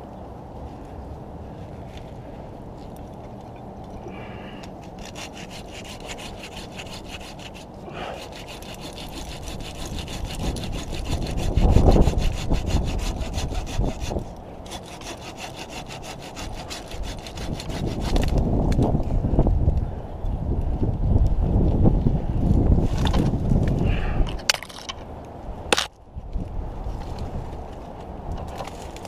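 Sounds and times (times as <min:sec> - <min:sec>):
handsaw cutting branch: 0:04.8 - 0:18.5.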